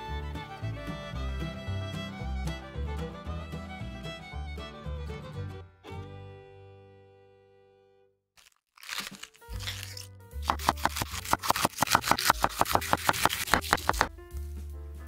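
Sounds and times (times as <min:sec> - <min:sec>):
background music: 0:00.0 - 0:07.0, 0:08.9 - 0:15.0
knife chopping cabbage on board: 0:09.0 - 0:14.1.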